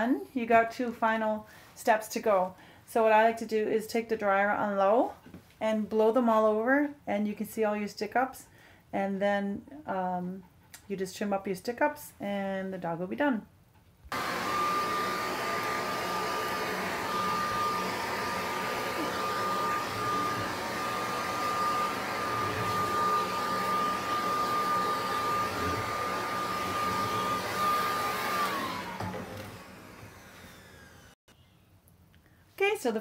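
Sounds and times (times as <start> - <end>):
dryer blowing air with motor whine: 14.1 - 31.2.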